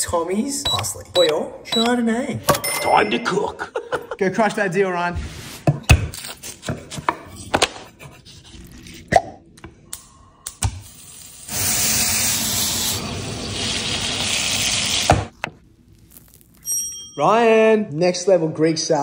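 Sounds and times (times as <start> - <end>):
chicken sizzling in oil: 11.0 - 15.3.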